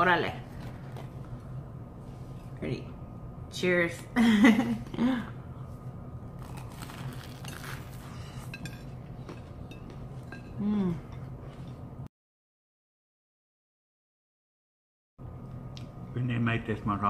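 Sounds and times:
people chewing crunchy bread: 0:06.4 - 0:10.8.

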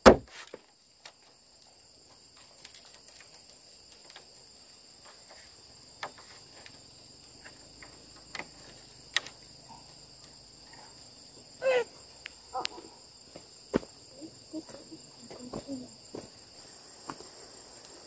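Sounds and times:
bamboo poles clicking and knocking: 0:00.0 - 0:04.4, 0:05.0 - 0:09.5
insects chirring: 0:00.0 - 0:18.0.

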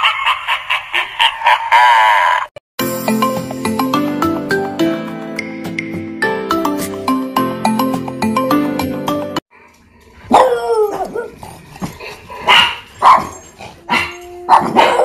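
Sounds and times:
music: 0:02.8 - 0:09.4
dog barking: 0:10.3 - 0:10.6, 0:12.4 - 0:15.0.

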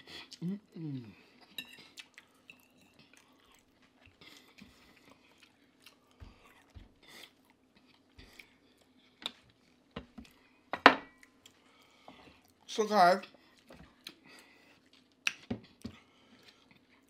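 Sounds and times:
close chewing and eating: 0:00.0 - 0:17.0.

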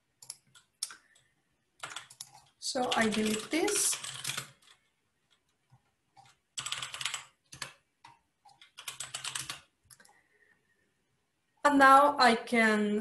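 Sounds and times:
computer keyboard typing: 0:00.1 - 0:10.2.

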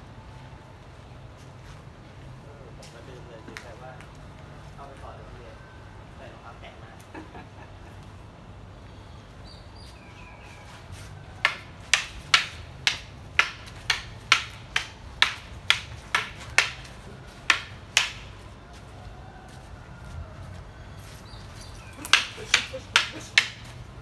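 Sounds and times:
wooden swords clacking: 0:11.4 - 0:18.4, 0:21.7 - 0:23.9.

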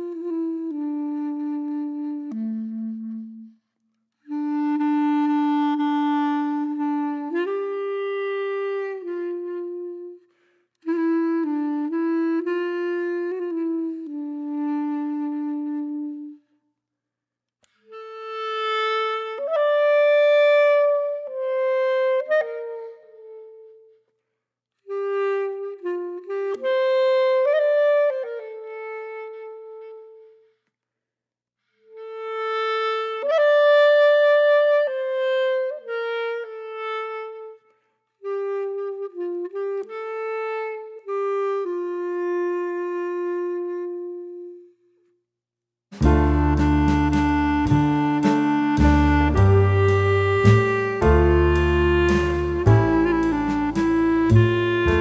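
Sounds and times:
single melody of held notes: 0:46.0 - 0:55.0.

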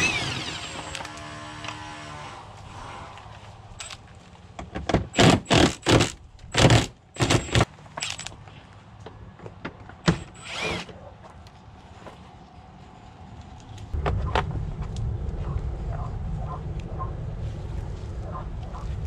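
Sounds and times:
impact wrench hammering bursts: 0:05.1 - 0:08.2.

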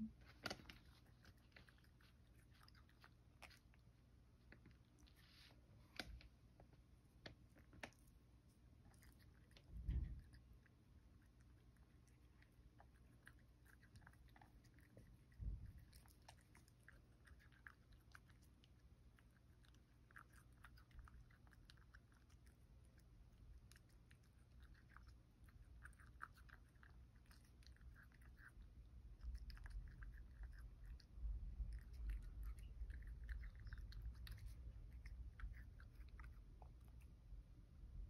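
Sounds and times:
cat chewing wetly: 0:00.1 - 0:37.8
low thump: 0:09.7 - 0:10.3.

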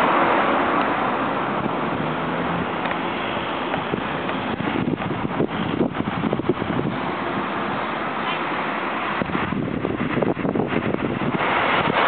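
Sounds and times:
road traffic passing: 0:00.0 - 0:12.0
wind buffeting microphone: 0:03.6 - 0:07.9, 0:08.6 - 0:12.0.

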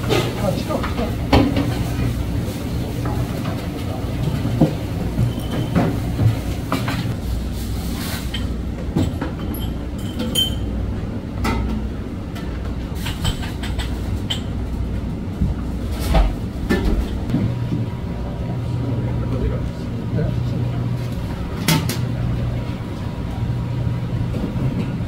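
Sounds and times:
kitchen machinery hum: 0:00.0 - 0:25.0
spoon and glassware clinks: 0:09.4 - 0:10.7.

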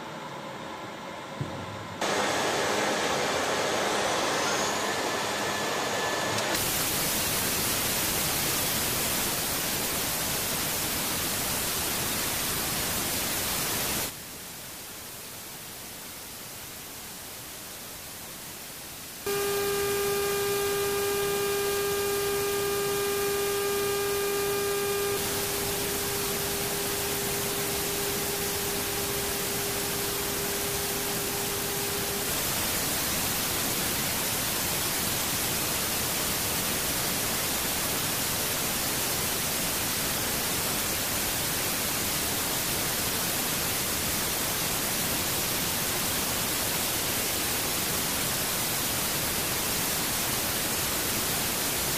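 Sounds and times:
steady tonal hum: 0:19.3 - 0:32.8
hissing aircraft cabin noise: 0:19.3 - 0:35.3.

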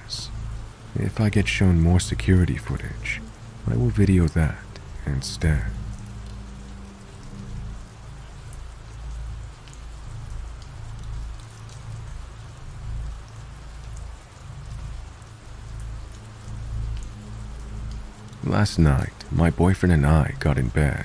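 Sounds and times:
steady rain hiss: 0:00.0 - 0:21.0.

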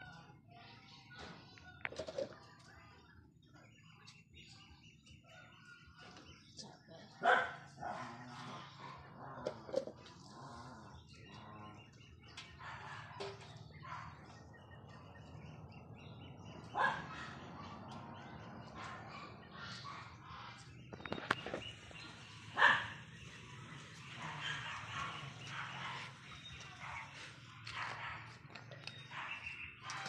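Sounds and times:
dog barking: 0:07.1 - 0:09.6, 0:12.5 - 0:14.5, 0:16.6 - 0:20.6, 0:22.4 - 0:23.2, 0:24.0 - 0:30.0.

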